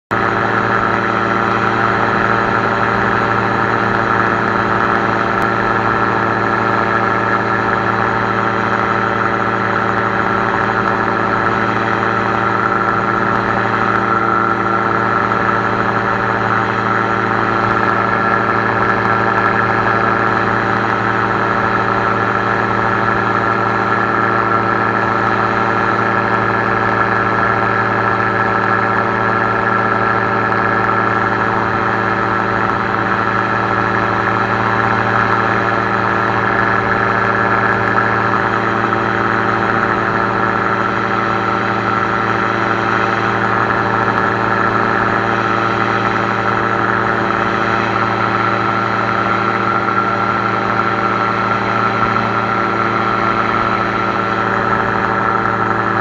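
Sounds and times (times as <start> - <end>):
aircraft engine and propeller drone: 0.0 - 56.0.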